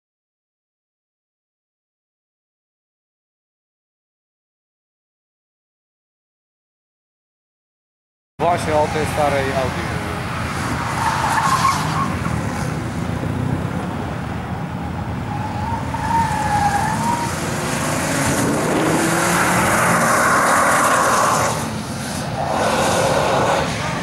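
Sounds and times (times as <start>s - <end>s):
car engine running hard: 8.4s - 24.0s
tyres squealing on tarmac: 10.6s - 12.6s, 14.6s - 18.4s, 19.1s - 21.7s.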